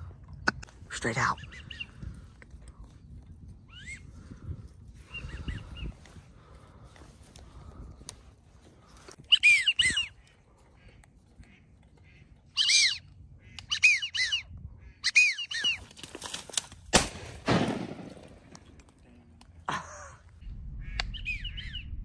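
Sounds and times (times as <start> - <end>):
waterfowl whistled calls: 9.3 - 10.2, 12.5 - 15.8.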